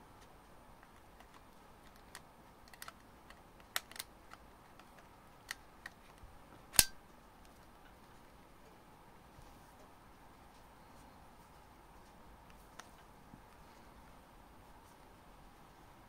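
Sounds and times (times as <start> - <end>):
small plastic clicks and scrapes: 0.8 - 6.2
battery latching click: 3.6 - 4.1.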